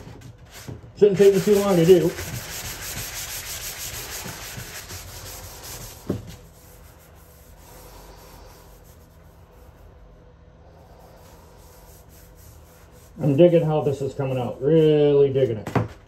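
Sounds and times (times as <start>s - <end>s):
sanding sponge rubbing: 0.5s - 9.9s, 10.8s - 15.4s
sponge knocking on tub: 5.8s - 6.4s.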